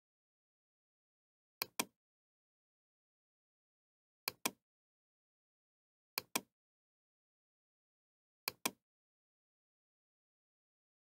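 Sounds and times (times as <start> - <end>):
computer mouse clicks: 1.6 - 2.0, 4.3 - 4.6, 6.2 - 6.5, 8.5 - 8.8.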